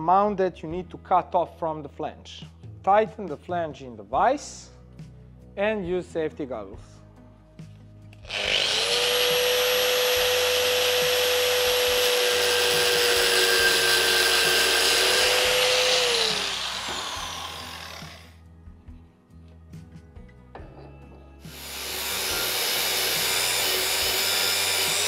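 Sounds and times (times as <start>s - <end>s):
angle grinder cutting metal: 8.2s - 18.3s, 21.5s - 25.0s
grinder winding down: 8.3s - 18.3s, 21.5s - 25.0s.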